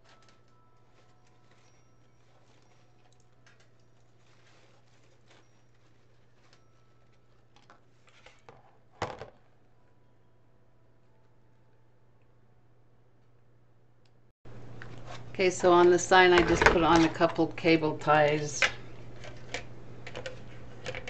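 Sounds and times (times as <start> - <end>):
mesh and ribbon rustling: 0.0 - 8.4
low steady hum: 0.0 - 21.0.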